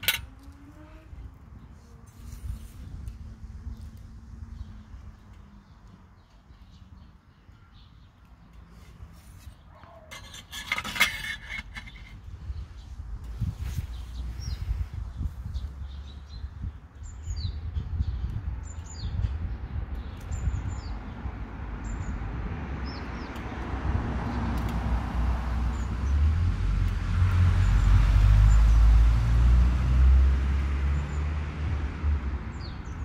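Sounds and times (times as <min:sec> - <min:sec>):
birds chirping: 0:00.9 - 0:23.5.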